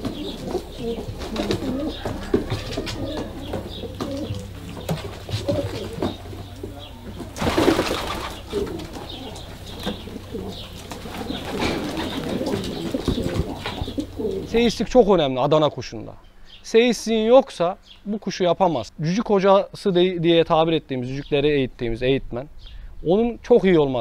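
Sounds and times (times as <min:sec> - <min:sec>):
pigeons cooing: 0:00.0 - 0:15.0.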